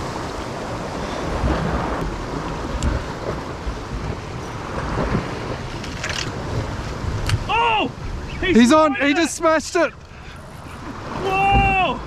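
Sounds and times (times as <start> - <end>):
ocean surf on rocks: 0.0 - 12.0
wind buffeting microphone: 0.0 - 12.0.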